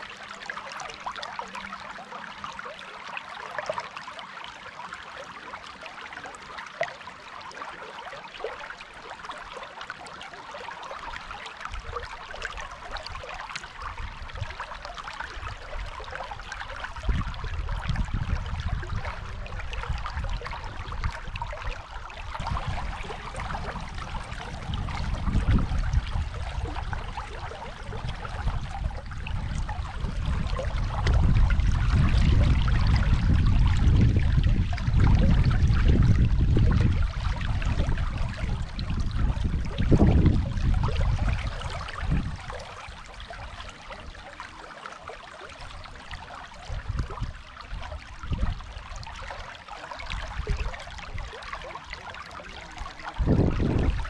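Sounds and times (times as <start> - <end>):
river water rushing: 21.3 - 28.8, 41.5 - 53.4
low rumble: 22.3 - 41.4.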